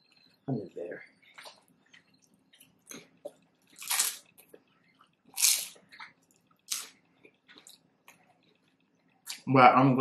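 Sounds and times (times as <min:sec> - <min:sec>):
chewing with wet mouth sounds: 0:01.2 - 0:09.5
crunching food: 0:01.2 - 0:09.5.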